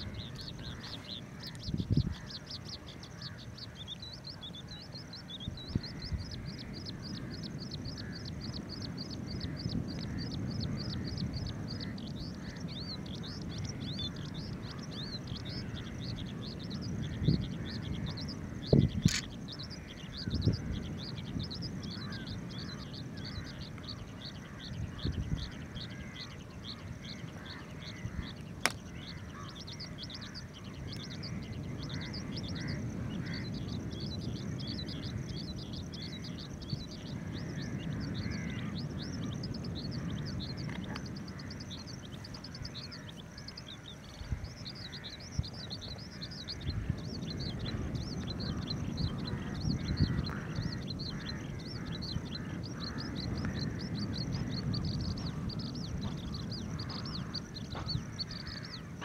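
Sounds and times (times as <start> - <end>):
steady low rumble: 0.0 - 59.0
sharp click: 19.0 - 19.3.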